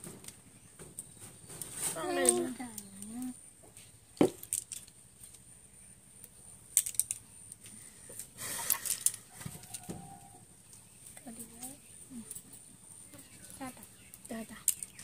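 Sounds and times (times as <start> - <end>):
short rustle: 1.2 - 2.6.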